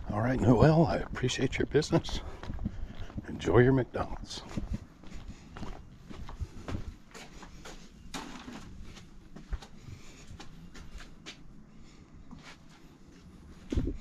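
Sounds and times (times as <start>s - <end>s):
footsteps on concrete: 0.0s - 8.0s.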